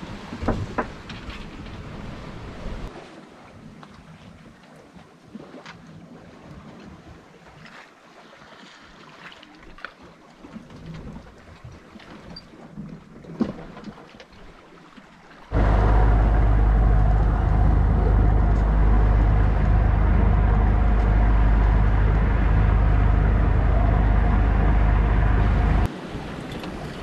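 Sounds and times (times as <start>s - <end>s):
boat engine running: 15.5s - 25.9s.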